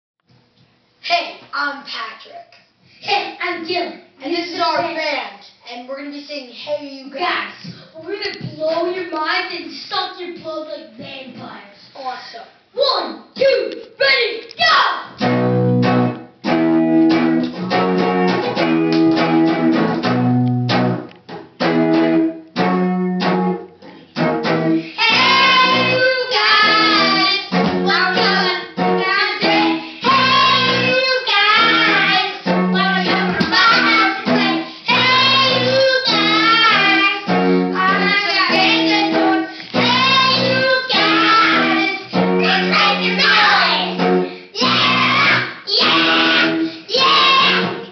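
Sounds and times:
electric guitar riff: 15.2s - 47.9s
boy singing into a microphone: 24.9s - 47.9s.

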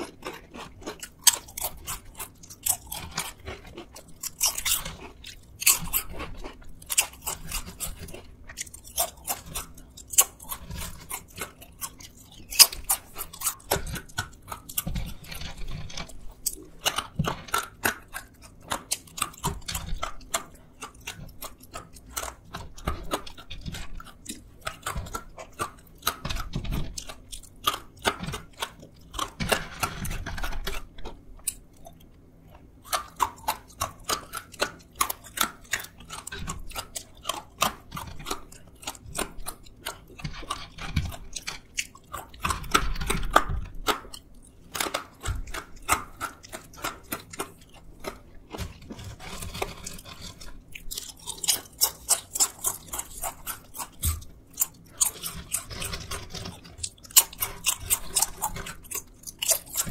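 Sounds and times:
crunching crisp snacks: 0.0s - 59.9s
soft chewing: 0.0s - 59.9s.

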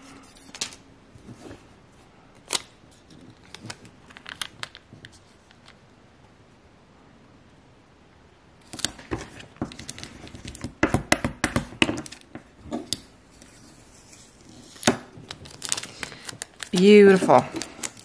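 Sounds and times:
tape crinkling and rustling: 2.4s - 5.8s, 8.6s - 10.8s, 11.8s - 18.0s.

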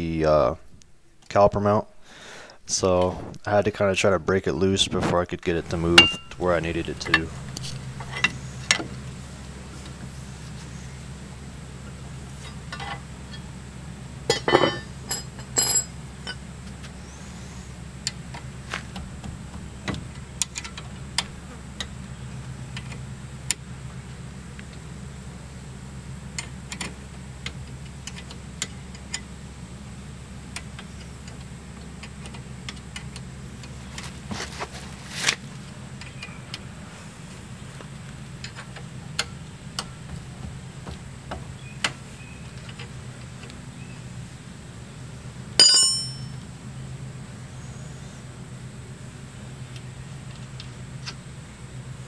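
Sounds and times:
steady low hum: 0.0s - 52.0s
sharp metallic clang: 6.0s - 6.4s, 45.6s - 46.4s
hand tools clicking and clinking: 45.6s - 46.4s.

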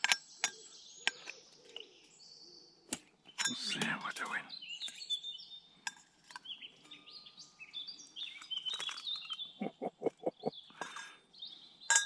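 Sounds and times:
birds singing and chirping: 0.0s - 12.0s.

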